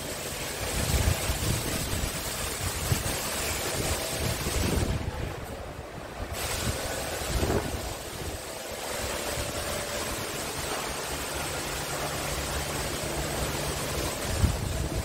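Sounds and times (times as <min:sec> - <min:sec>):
wind buffeting microphone: 0:00.6 - 0:09.8, 0:14.1 - 0:15.0.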